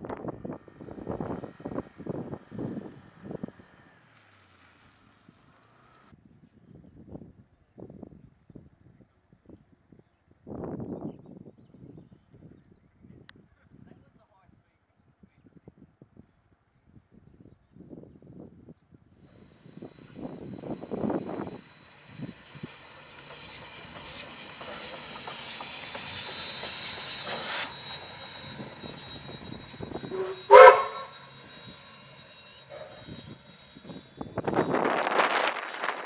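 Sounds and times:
steam locomotive running past: 19.3 - 36.0
steam whistle blast: 28.4 - 31.8.

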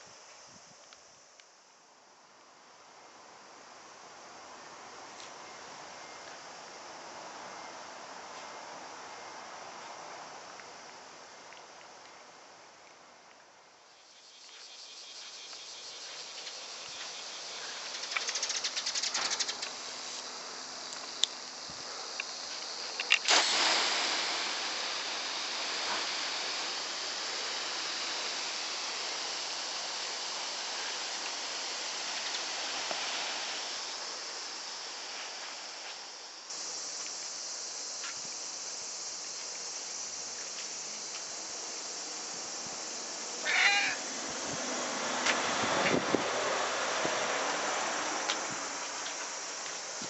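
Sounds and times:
hose nozzle spraying water: 22.2 - 35.8
cat meowing: 43.4 - 44.0.

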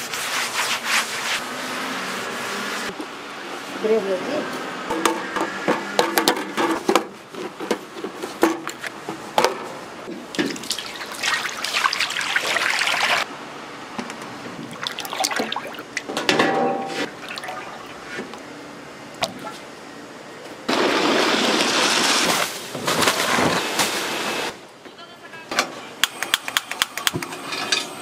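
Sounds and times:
water running and splashing: 10.5 - 13.3, 14.7 - 16.0.

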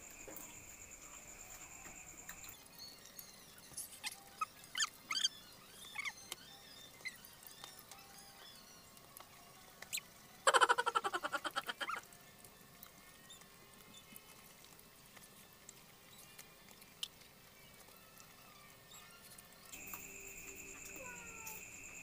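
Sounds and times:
cricket trilling: 0.0 - 2.9, 9.9 - 12.0, 19.7 - 22.0
faint eating clicks: 3.6 - 21.7.

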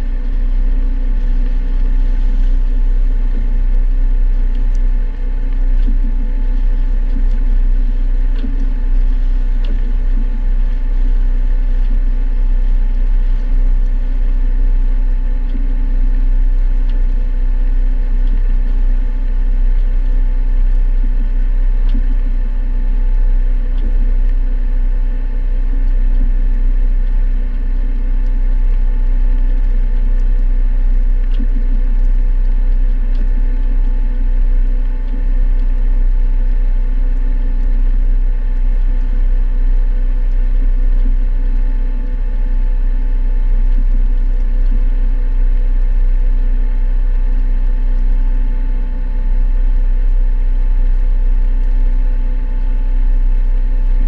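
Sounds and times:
boat engine running: 0.0 - 22.5.

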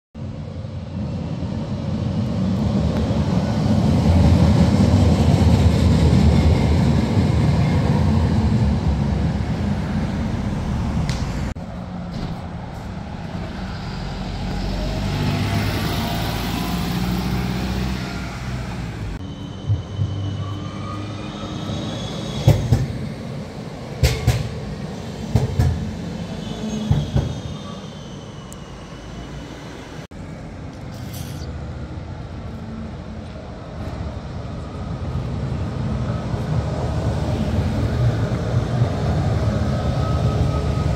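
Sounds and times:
bus driving by: 0.2 - 40.9
tram clacks: 2.1 - 15.8, 22.3 - 27.8
vehicle low rumble: 8.8 - 19.2
faint high squeal: 19.2 - 22.8, 26.2 - 30.0.

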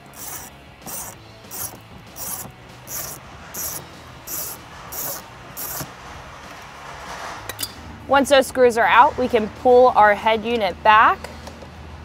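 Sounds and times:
ratchet clicking: 0.0 - 5.9.

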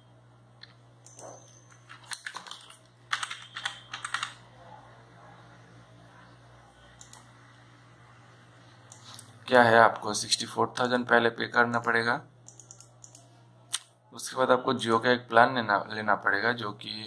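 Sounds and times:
typing on keyboard: 1.1 - 4.4, 12.5 - 13.3.

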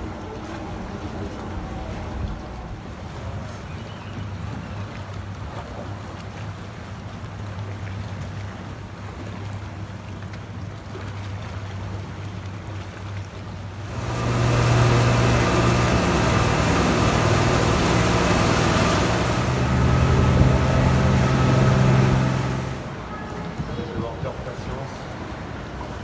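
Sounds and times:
motorboat engine: 0.0 - 3.7, 4.3 - 26.0
water rushing past hull: 0.0 - 26.0.

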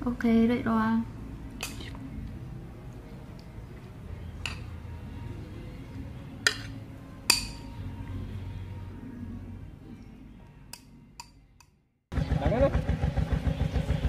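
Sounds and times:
kitchenware clinking: 4.4 - 4.7, 6.4 - 7.8.

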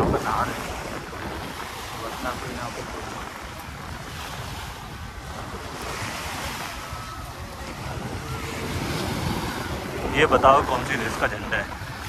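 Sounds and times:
sea waves washing onto beach: 0.0 - 12.0
wind buffeting microphone: 0.0 - 12.0.

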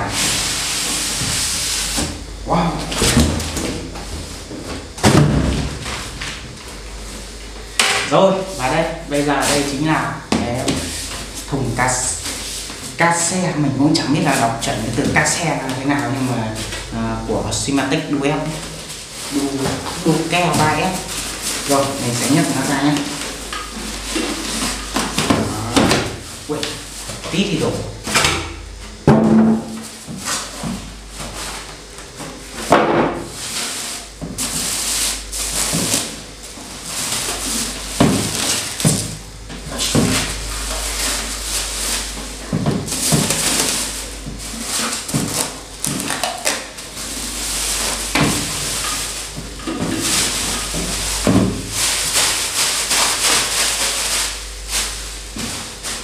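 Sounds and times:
plastic wrapping crinkling: 33.4 - 56.0.

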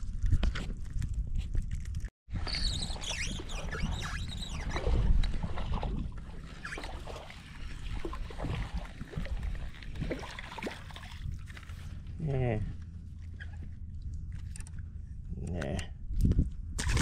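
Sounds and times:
high wavering whistly sounds: 2.4 - 4.9
wind buffeting microphone: 15.0 - 17.0.

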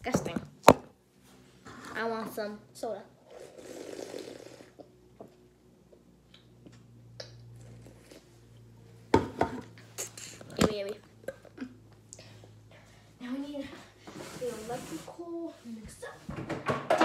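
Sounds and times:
person slurping and swallowing: 3.2 - 4.9
objects knocking on counter: 9.1 - 9.6, 16.3 - 17.0.

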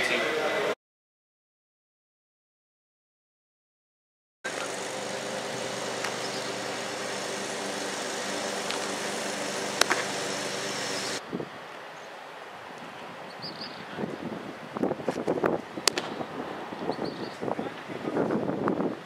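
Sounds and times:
mechanical motor hum: 4.5 - 11.2.

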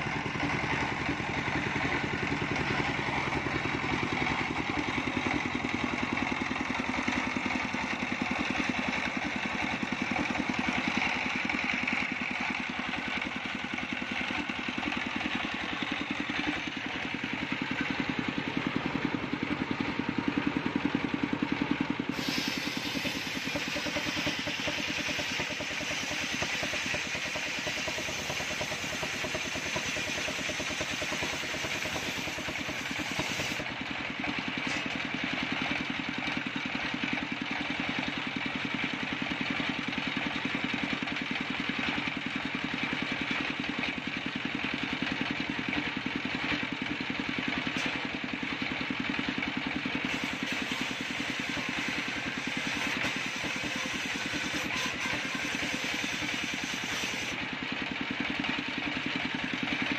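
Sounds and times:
engine drone of circular saw: 0.0 - 59.9
saw blade hissing in wood: 22.1 - 33.6, 50.0 - 57.4.

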